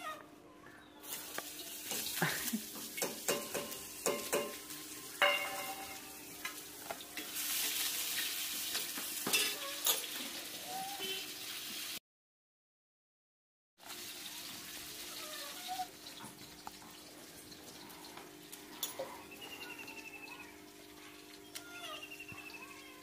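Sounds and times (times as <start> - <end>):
frying sizzle: 1.0 - 12.0, 13.8 - 23.0
metal utensils scraping pots: 1.9 - 6.6, 7.2 - 10.4.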